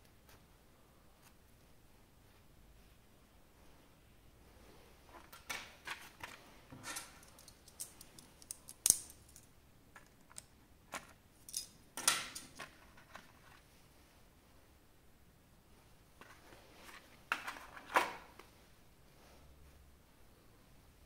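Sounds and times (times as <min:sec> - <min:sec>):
plastic parts clicking: 0:07.0 - 0:12.8.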